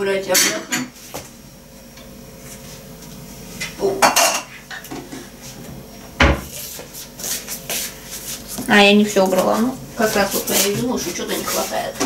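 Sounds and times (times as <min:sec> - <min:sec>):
dishes clinking and knocking: 0:03.8 - 0:05.2.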